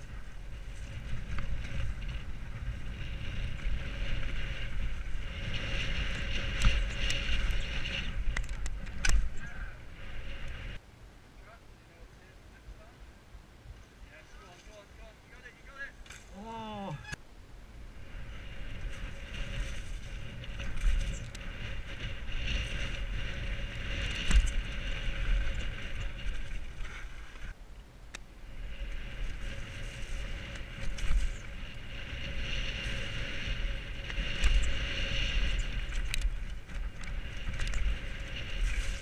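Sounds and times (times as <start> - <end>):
bike rattling: 0.0 - 10.8, 18.0 - 27.6, 28.4 - 39.0
wind rushing over microphone: 0.0 - 10.8, 12.7 - 39.0.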